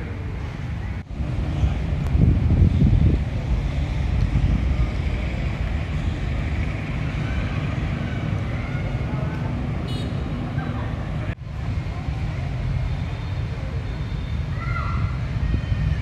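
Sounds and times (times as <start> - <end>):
wind buffeting microphone: 0.8 - 9.8.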